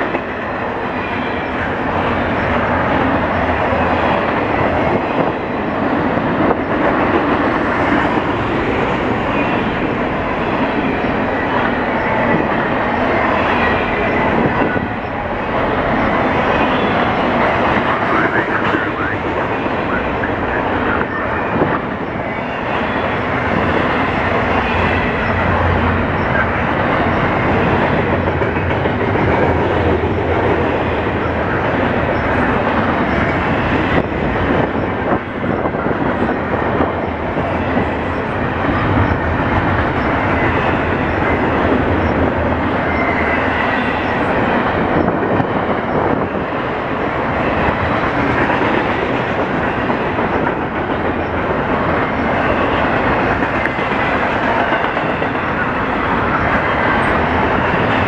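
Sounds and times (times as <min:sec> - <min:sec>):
steel wheels on rails: 0:00.0 - 0:58.0
train cars clattering: 0:00.0 - 0:58.0.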